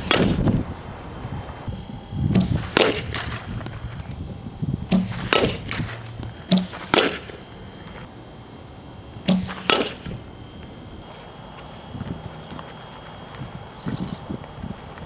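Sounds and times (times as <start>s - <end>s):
bat hitting ball: 0.0s - 0.5s, 2.3s - 3.8s, 4.9s - 7.4s, 9.2s - 10.2s
pitching machine firing ball: 0.0s - 11.1s.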